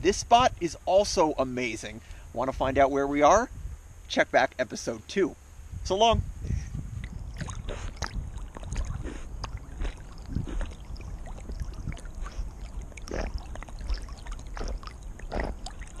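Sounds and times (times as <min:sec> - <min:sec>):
steady low rumble: 0:04.8 - 0:16.0
water sloshing around swimming dog: 0:07.2 - 0:16.0.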